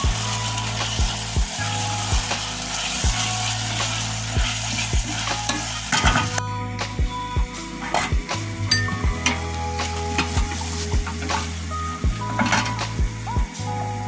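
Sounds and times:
food sizzling in a pot: 0:00.0 - 0:14.0
metal lid clinking: 0:08.7 - 0:09.5, 0:12.4 - 0:12.8.

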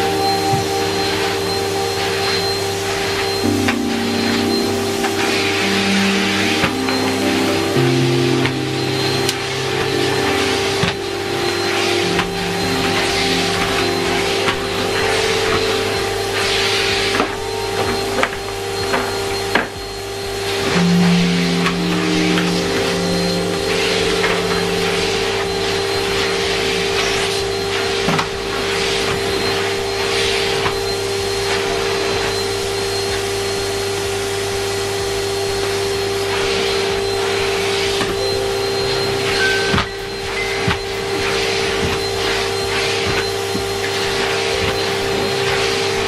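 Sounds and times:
vacuum cleaner motor hum: 0:00.0 - 0:46.0
vacuum floor tool on carpet: 0:23.6 - 0:46.0.

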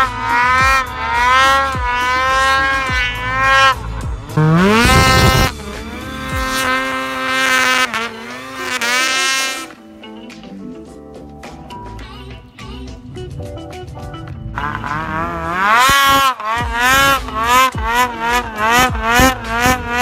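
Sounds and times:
snowmobile engines revving: 0:00.0 - 0:09.8, 0:14.5 - 0:20.0.

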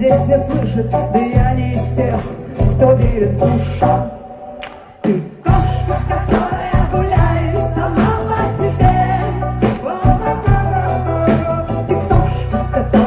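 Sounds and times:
live rock band playing: 0:00.0 - 0:13.0
person singing: 0:04.9 - 0:13.0
drum hits: 0:05.1 - 0:10.8
heavy bass line: 0:05.5 - 0:13.0.

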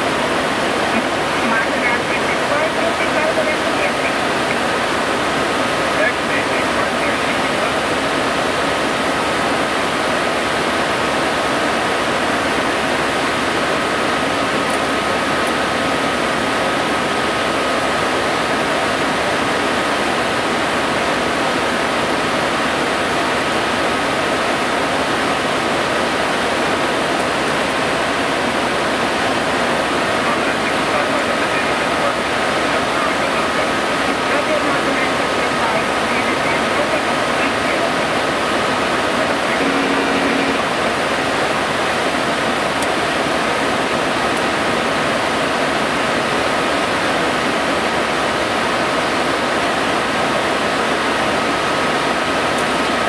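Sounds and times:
thin steady whine: 0:00.0 - 0:53.0.

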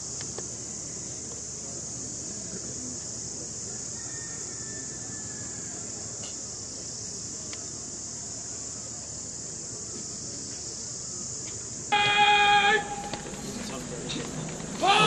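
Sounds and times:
insect chorus drone: 0:00.0 - 0:15.0.

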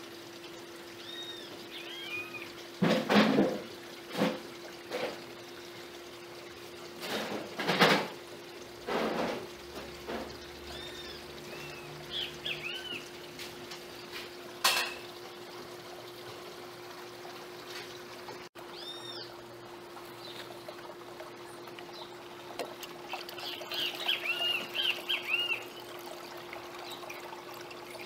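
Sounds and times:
bird chirping: 0:01.0 - 0:02.5, 0:10.7 - 0:13.0, 0:23.4 - 0:25.9.

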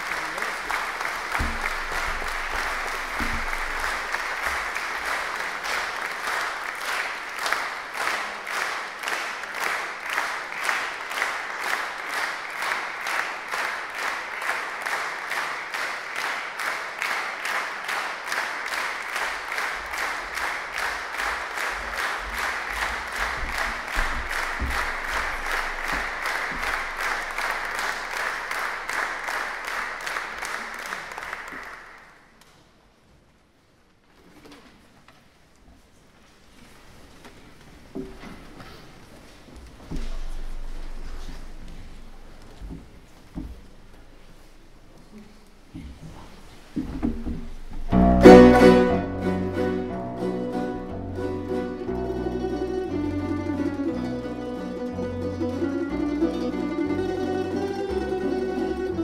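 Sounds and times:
audience clapping in rhythm: 0:00.0 - 0:32.6, 0:40.0 - 0:52.8.

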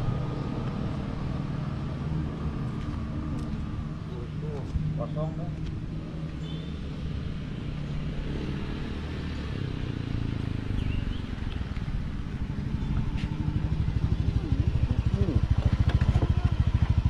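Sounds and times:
motor scooter engine running: 0:12.3 - 0:17.0.

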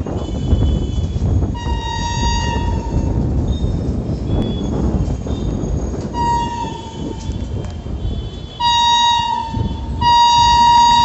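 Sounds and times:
electric locomotive horn: 0:00.1 - 0:03.2, 0:06.1 - 0:07.4, 0:08.0 - 0:11.0.

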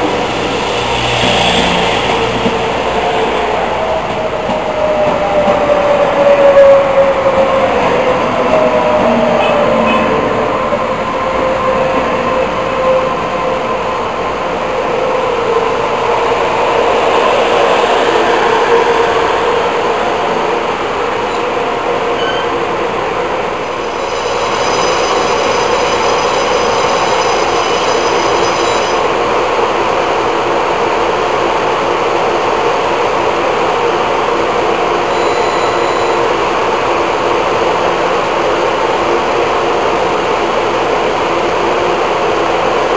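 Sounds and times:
electric train rolling: 0:00.0 - 0:42.9.

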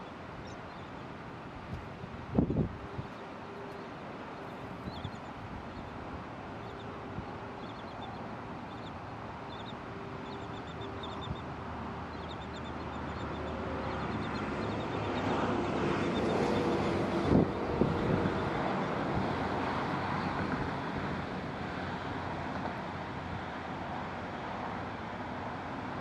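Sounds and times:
engine drone: 0:06.5 - 0:22.0
faint high bird calls: 0:06.6 - 0:11.5.

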